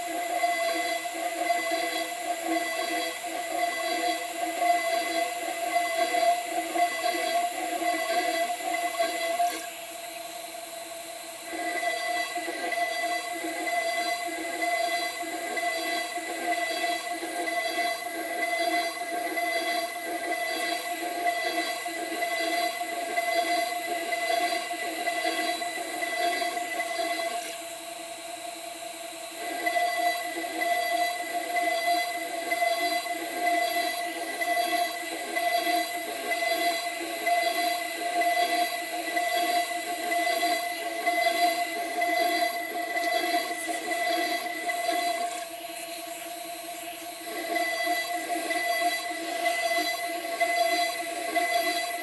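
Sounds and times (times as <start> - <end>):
router spindle milling metal: 11.4 - 27.7, 29.3 - 52.0.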